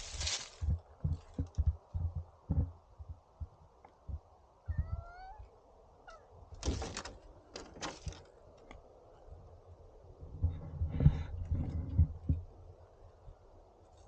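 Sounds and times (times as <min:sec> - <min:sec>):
claws scraping on wooden fence: 0:00.0 - 0:01.4
cat meowing: 0:04.7 - 0:06.3.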